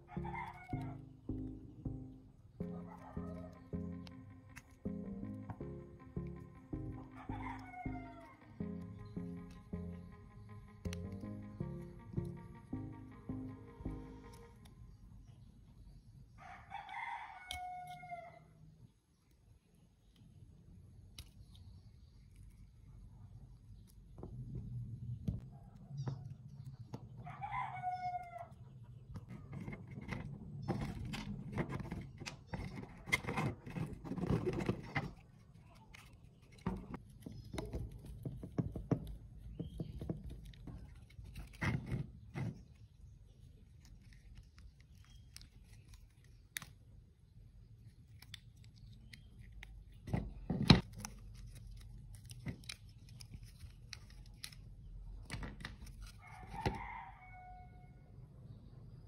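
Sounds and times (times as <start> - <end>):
chicken clucking: 0.0 - 1.1
plastic casing clicking and rattling: 29.2 - 42.6.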